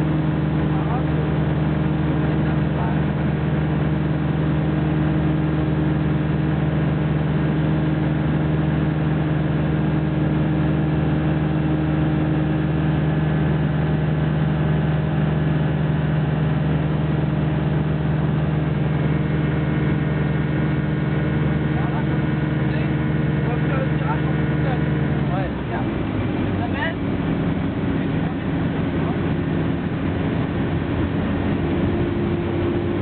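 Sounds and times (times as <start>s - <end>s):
propeller aircraft engine droning: 0.0s - 33.0s.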